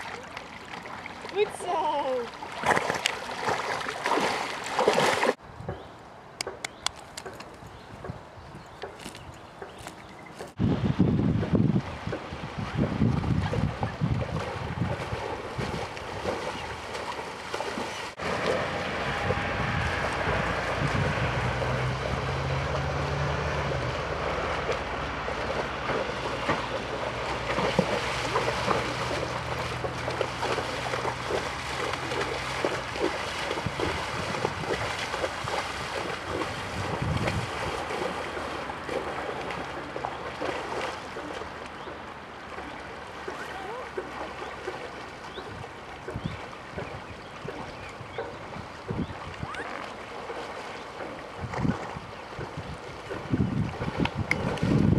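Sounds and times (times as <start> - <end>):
water sloshing and splashing: 0.0 - 5.4, 11.4 - 54.9
wind buffeting microphone: 6.6 - 17.8, 18.6 - 40.5, 45.2 - 49.7, 50.3 - 54.9.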